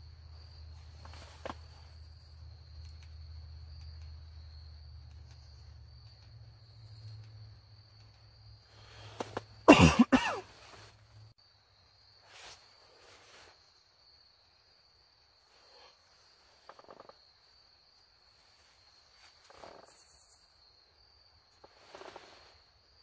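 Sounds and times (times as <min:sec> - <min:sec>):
insects chirring: 0:00.0 - 0:23.0
faint rustles: 0:00.6 - 0:03.2, 0:10.4 - 0:11.3, 0:12.2 - 0:13.9, 0:18.3 - 0:20.5, 0:21.5 - 0:23.0
man coughing: 0:09.7 - 0:10.5.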